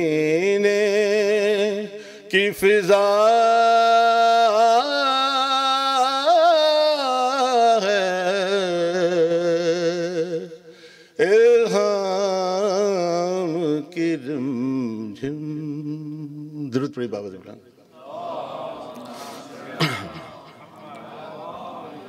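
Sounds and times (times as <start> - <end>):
man singing unaccompanied: 0.0 - 17.5.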